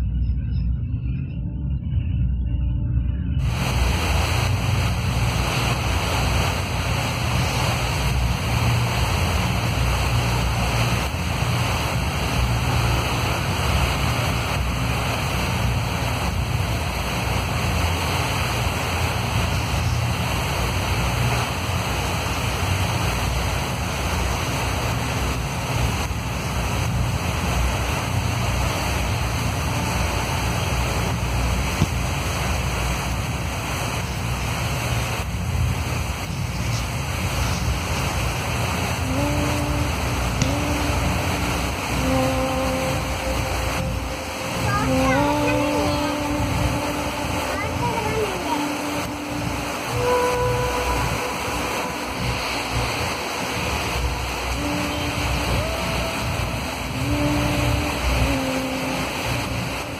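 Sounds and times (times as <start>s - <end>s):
wind rumble on microphone: 0.0s - 59.9s
heavy rain falling: 3.4s - 59.9s.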